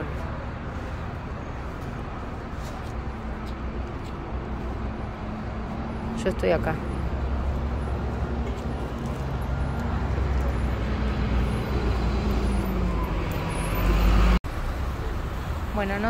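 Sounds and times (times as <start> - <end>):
road traffic rumble: 0.0 - 16.0
vehicle passing close: 4.9 - 14.4.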